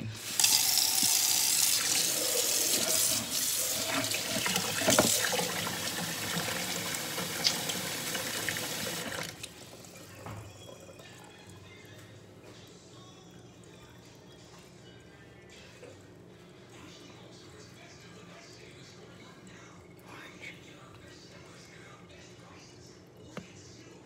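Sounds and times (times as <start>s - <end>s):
water running from tap: 0.0s - 10.4s.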